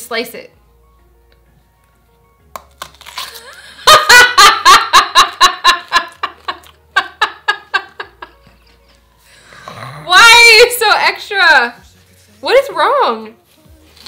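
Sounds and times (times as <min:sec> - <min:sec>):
woman laughing hard: 0:03.3 - 0:08.8.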